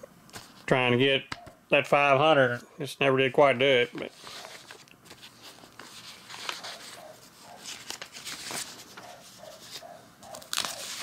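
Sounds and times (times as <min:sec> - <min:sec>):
paper and plastic sheets rustling: 0:03.7 - 0:11.0.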